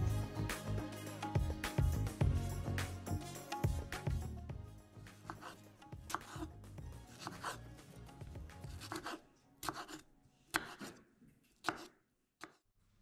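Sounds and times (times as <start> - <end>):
knife cutting on wooden board: 5.3 - 6.5, 7.1 - 7.6, 8.6 - 12.6.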